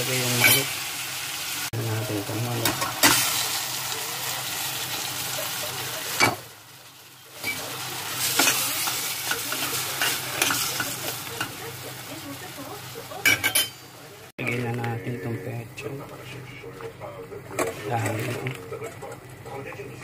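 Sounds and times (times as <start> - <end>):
chicken sizzling in a pot: 0.0 - 14.3.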